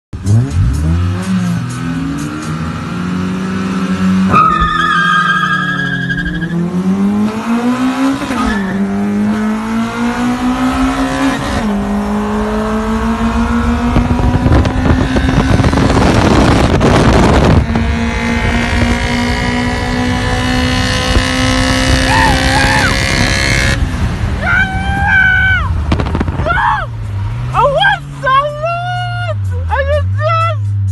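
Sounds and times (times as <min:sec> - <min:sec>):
car engine revving hard: 0:00.2 - 0:24.4.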